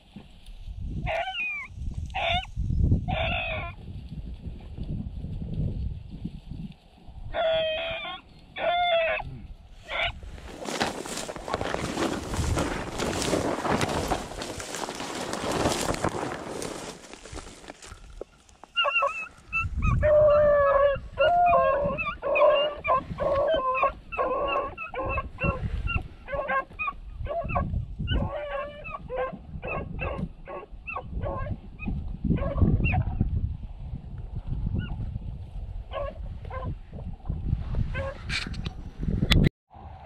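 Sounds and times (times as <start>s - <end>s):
dry brush crackling underfoot: 0.0s - 27.1s
hounds baying: 1.1s - 2.5s, 3.1s - 3.7s, 7.3s - 9.3s, 18.8s - 33.1s, 35.9s - 36.7s.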